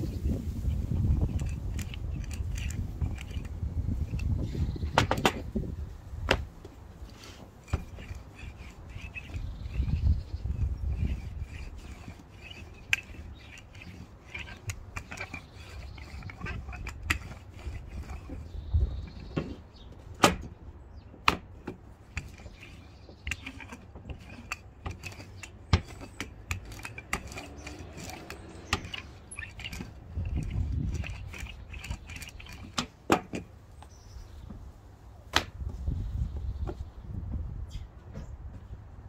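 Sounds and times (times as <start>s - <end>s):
sharp wooden knocks: 4.9s - 5.5s, 20.2s - 20.6s.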